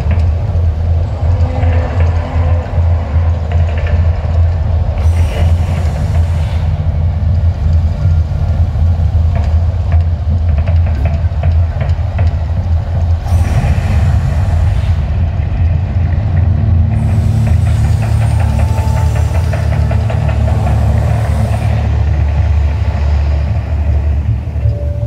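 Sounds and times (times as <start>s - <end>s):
deep steady rumble: 0.0s - 25.0s
rushing hiss of flames: 13.1s - 15.4s.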